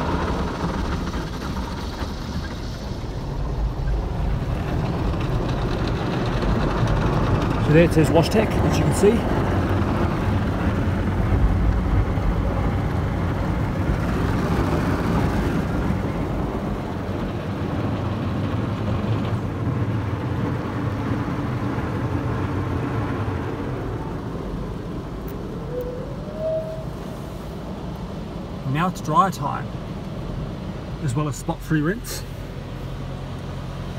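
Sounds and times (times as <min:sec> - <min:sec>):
short rising whine: 0:23.7 - 0:27.8.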